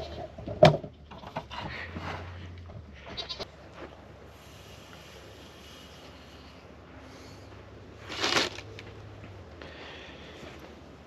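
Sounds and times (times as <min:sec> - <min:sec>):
scooping and pouring feed: 0:08.0 - 0:08.8.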